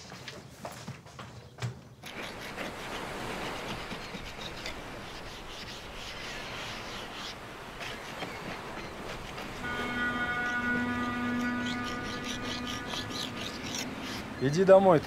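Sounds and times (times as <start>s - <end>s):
hand scraping paint on wood: 2.0s - 14.8s.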